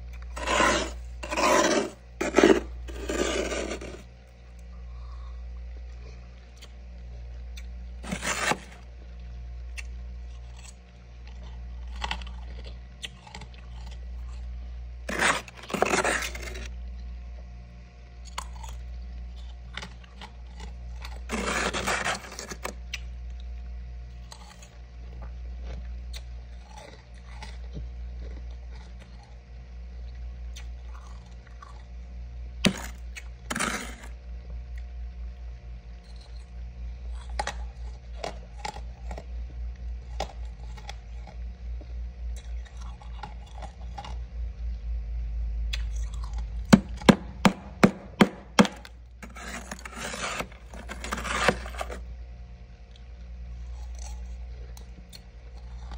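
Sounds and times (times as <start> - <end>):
frost crunching: 0.0 - 4.1, 8.0 - 8.8, 15.1 - 16.7, 19.4 - 22.7, 46.0 - 52.0
steady low hum: 0.0 - 55.9.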